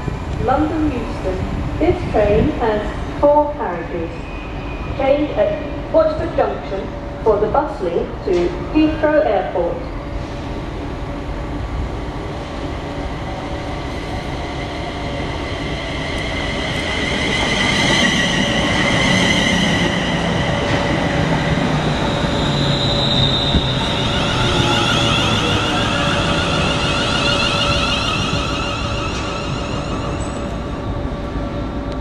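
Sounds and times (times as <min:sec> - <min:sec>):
wheels rumbling on rail: 0:10.0 - 0:32.0
train traction motor whine: 0:13.8 - 0:32.0.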